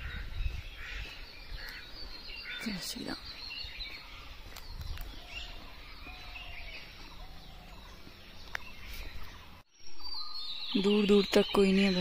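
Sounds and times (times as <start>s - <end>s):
wind rumbling on microphone: 0.0s - 2.6s, 3.2s - 9.0s
distant birds chirping: 0.0s - 12.0s.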